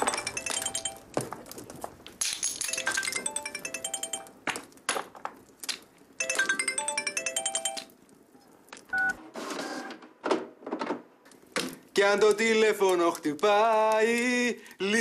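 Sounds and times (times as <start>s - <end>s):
melodic phone ringtone: 0.0s - 1.1s, 2.7s - 4.4s, 6.2s - 8.0s.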